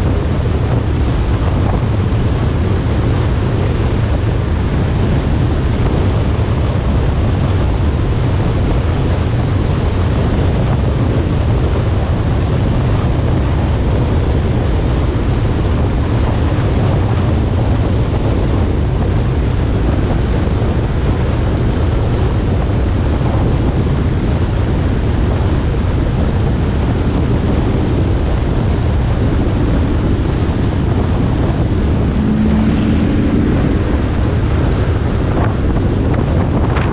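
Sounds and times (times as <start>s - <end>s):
road and engine noise: 0.0s - 36.9s
wind buffeting camera: 0.0s - 36.9s
low hum: 28.2s - 36.9s.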